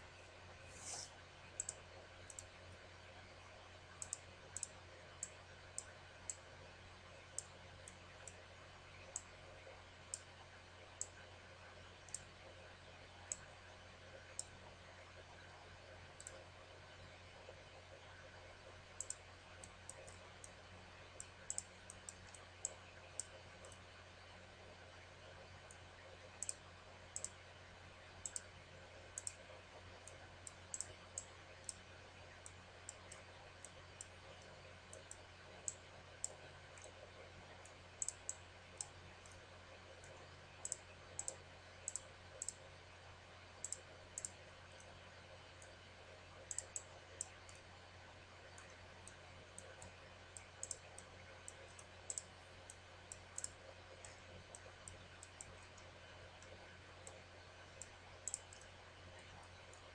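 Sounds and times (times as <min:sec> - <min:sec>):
faint steady hum: 0:00.0 - 0:59.9
computer mouse buttons clicking: 0:00.7 - 0:02.5, 0:04.0 - 0:06.4, 0:16.2 - 0:16.4, 0:19.0 - 0:20.6, 0:21.5 - 0:23.8, 0:26.4 - 0:26.6, 0:27.2 - 0:27.4, 0:28.2 - 0:28.5, 0:29.2 - 0:29.4, 0:30.0 - 0:31.8, 0:37.6 - 0:39.4, 0:40.0 - 0:42.6, 0:43.6 - 0:44.9, 0:46.5 - 0:47.6, 0:48.6 - 0:57.2, 0:57.8 - 0:58.7.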